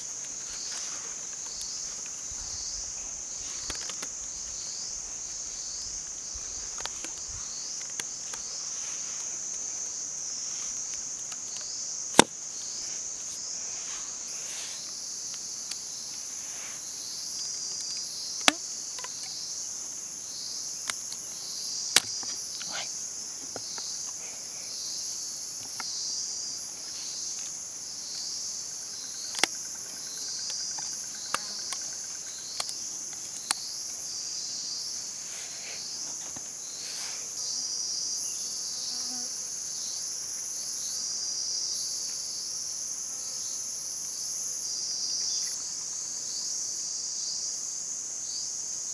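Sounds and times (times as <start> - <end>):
insects chorus: 0.0 - 48.9
bamboo sticks clicking and knocking: 3.6 - 4.2, 17.3 - 19.3, 29.2 - 33.6.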